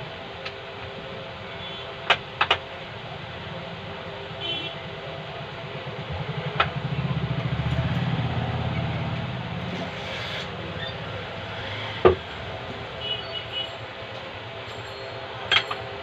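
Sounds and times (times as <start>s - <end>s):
vehicle engine passing by: 5.7s - 13.6s.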